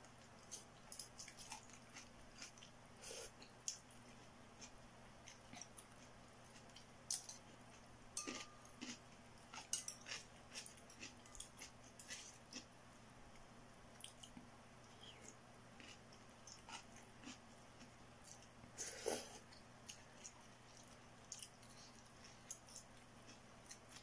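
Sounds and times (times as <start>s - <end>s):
faint steady hum: 0.0s - 24.0s
person chewing and slurping: 8.2s - 12.7s.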